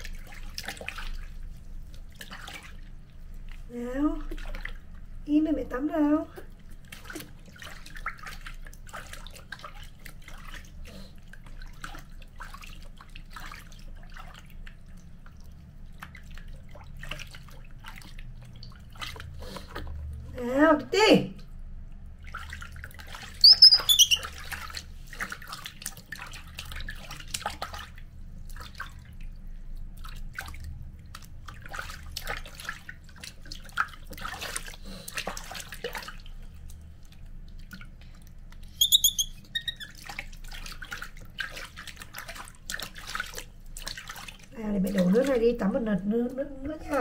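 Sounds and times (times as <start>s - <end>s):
water splashing in plastic basin: 0.0s - 47.0s
baby monkey squeaking: 23.4s - 24.3s, 38.8s - 39.9s.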